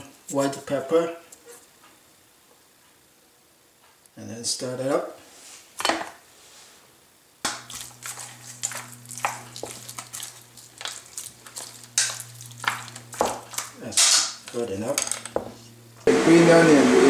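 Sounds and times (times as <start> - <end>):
steady low hum: 7.5 - 16.4
wet squelching of meat: 7.6 - 13.8
chopsticks scraping metal bowl: 7.6 - 15.3.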